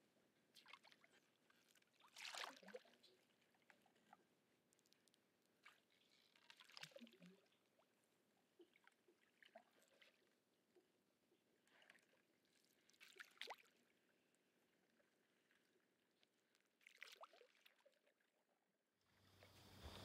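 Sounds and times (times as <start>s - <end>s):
paddle splashing in water: 1.8s - 2.9s.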